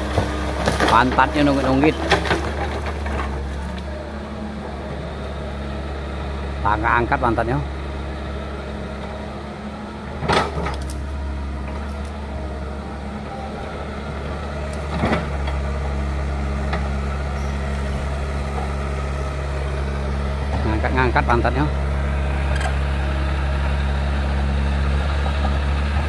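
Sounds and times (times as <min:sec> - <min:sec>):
excavator diesel engine under load: 0:00.0 - 0:26.0.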